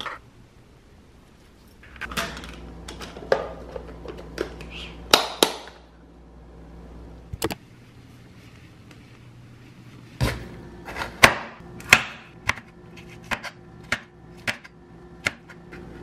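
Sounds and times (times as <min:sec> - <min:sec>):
low hum: 0:05.8 - 0:16.0.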